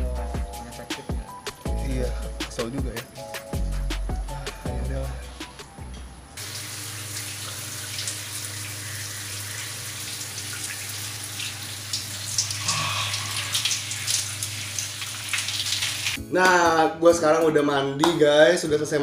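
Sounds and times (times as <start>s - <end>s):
water running and splashing: 6.4s - 16.2s.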